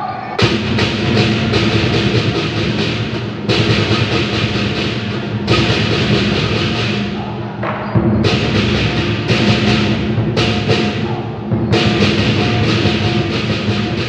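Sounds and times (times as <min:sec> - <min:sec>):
loud cymbal crash: 0:00.4 - 0:07.2
large drum beaten steadily: 0:00.4 - 0:14.0.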